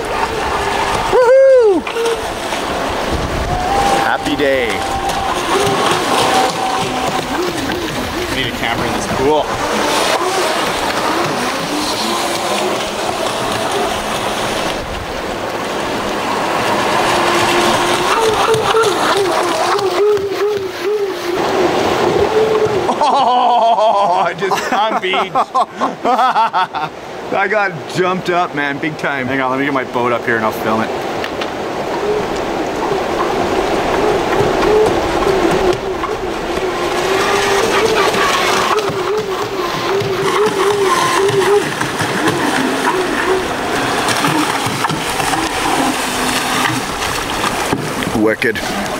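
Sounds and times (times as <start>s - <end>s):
rushing river rapids: 0.0s - 48.9s
electric motor whining: 3.6s - 14.7s, 34.0s - 46.9s.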